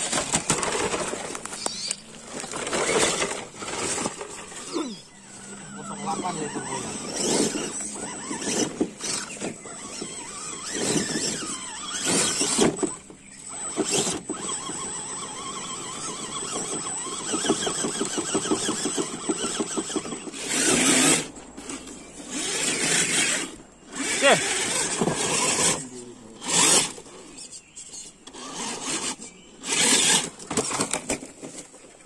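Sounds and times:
tyres scraping and knocking on stones: 0.0s - 5.0s, 16.6s - 25.8s, 28.4s - 32.0s
electric motor and gears whining: 0.0s - 32.0s.

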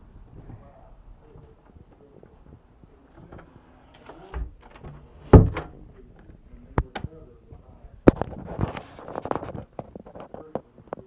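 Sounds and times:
door banging shut: 3.2s - 6.0s
low thump: 4.3s - 6.0s.

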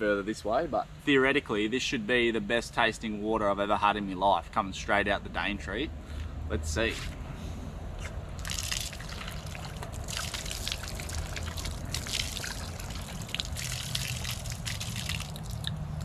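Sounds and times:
water splashing into hands: 8.4s - 16.0s.

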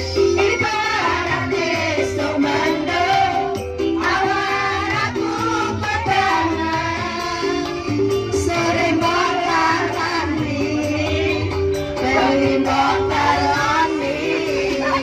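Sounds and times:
person singing: 8.8s - 15.0s.

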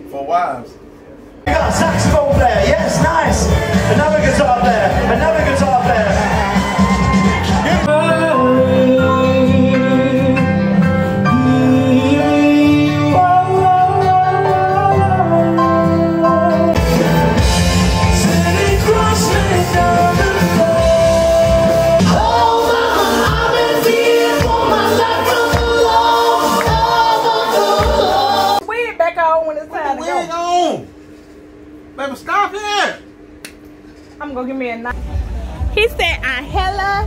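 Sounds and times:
steady drum beat: 1.5s - 7.9s, 16.8s - 28.6s, 34.9s - 37.0s
person singing with band: 18.0s - 28.6s.

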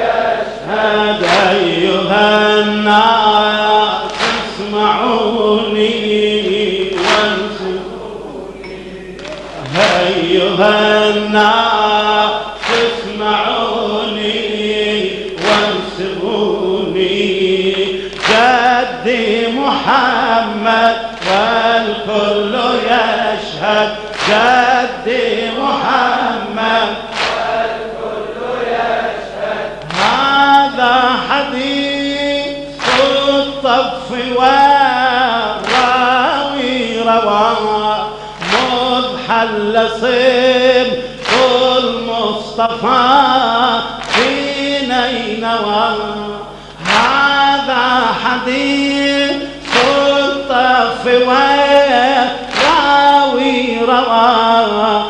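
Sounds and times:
crowd of men chanting: 0.0s - 31.9s
chest-beating slaps: 4.1s - 4.6s, 7.0s - 7.4s, 12.6s - 12.9s, 24.1s - 24.6s, 27.1s - 27.6s, 32.8s - 33.2s, 35.6s - 36.0s, 41.2s - 41.8s, 44.0s - 44.4s, 49.6s - 50.1s.

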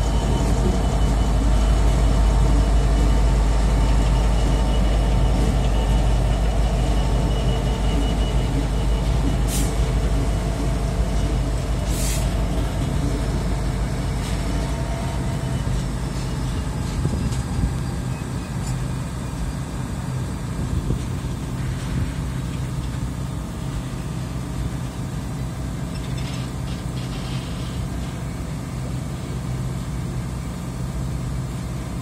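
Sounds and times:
diesel locomotive engine drone: 0.0s - 32.0s
short air hisses: 11.9s - 12.4s.

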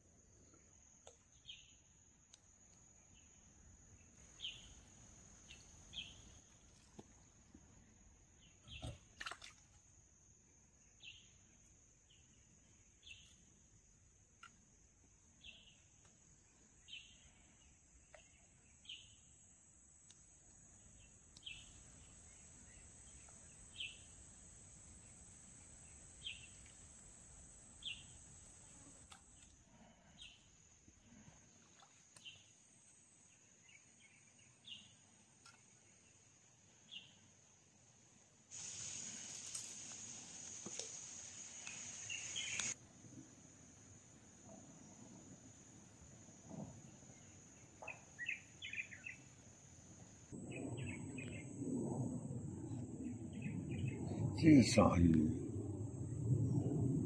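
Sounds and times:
high-pitched insect trill: 18.8s - 29.5s
bird chirping: 47.8s - 49.3s.

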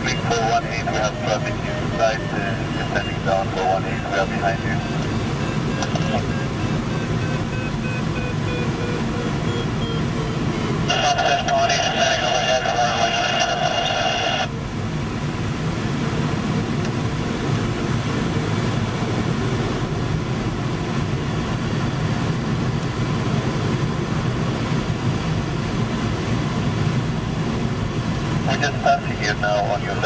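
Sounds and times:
higher-pitched sound: 0.0s - 11.8s
wind streaming past cockpit: 0.0s - 30.0s.

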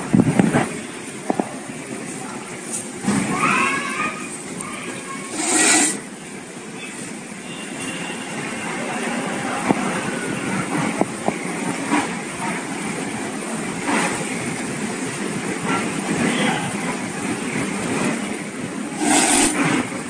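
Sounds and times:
kittens hissing: 5.3s - 6.0s, 19.0s - 19.7s
steady rushing noise: 17.1s - 20.0s.

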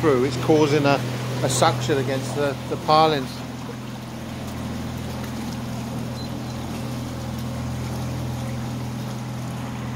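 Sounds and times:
boat motor humming: 0.0s - 9.9s.

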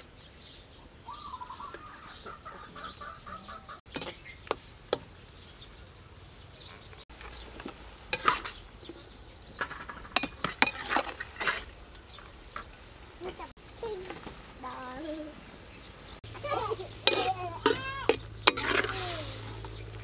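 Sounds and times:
bird calling: 0.2s - 5.9s
metal spatula scraping a wok: 8.1s - 8.7s, 9.8s - 11.8s, 17.0s - 19.6s.

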